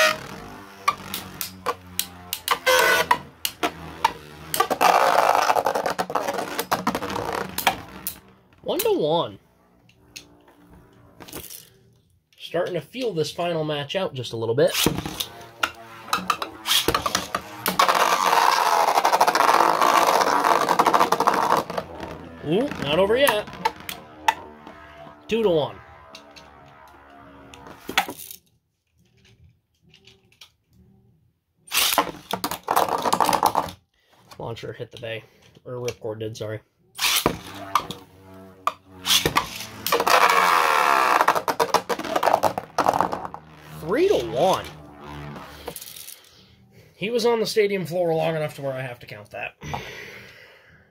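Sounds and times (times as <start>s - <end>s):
spinning tops rattling whir: 0.0s - 8.4s, 14.8s - 28.4s, 37.0s - 46.3s
spinning tops clattering and whirring: 45.7s - 46.2s.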